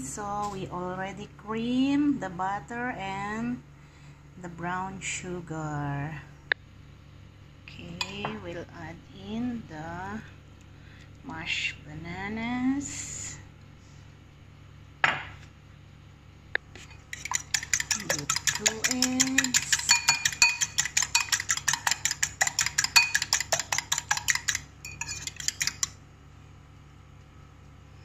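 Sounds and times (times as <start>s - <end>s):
eggs beaten with metal utensil: 16.8s - 26.0s.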